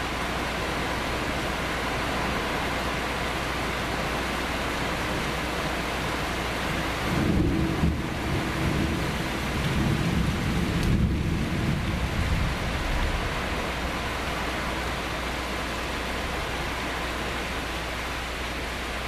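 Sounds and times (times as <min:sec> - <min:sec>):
steady rain: 0:00.0 - 0:19.0
thunder rumbling: 0:07.0 - 0:14.5.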